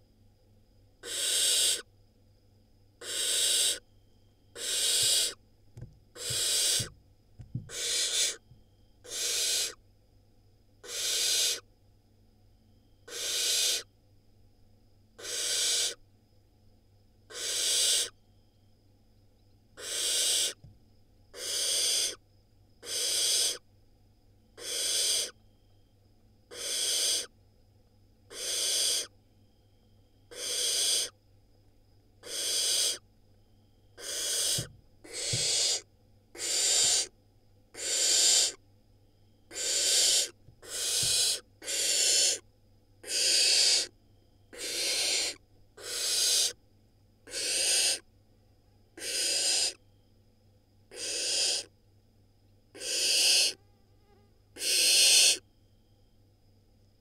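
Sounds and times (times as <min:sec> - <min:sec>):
owlets hissing: 0:06.2 - 0:06.9.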